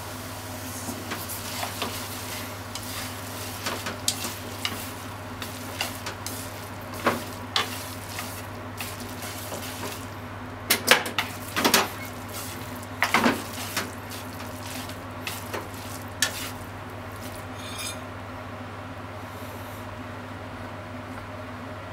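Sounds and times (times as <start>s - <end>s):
food sizzling in a frying pan: 0.0s - 18.0s
utensils knocking and scraping pan: 1.0s - 18.0s.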